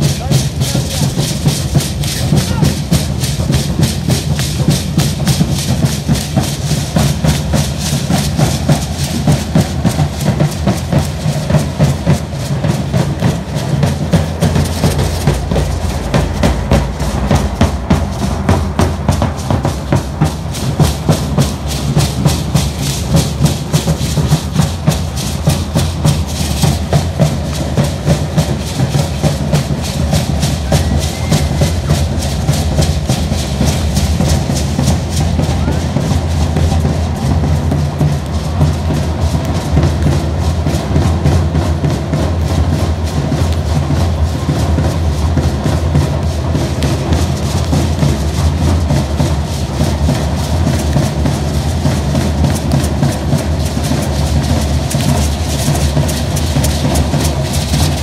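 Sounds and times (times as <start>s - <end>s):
large drums beating: 0.0s - 58.0s.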